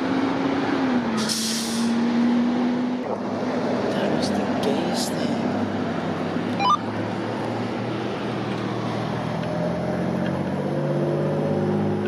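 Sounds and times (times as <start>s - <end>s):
brief chirp: 6.6s - 6.8s.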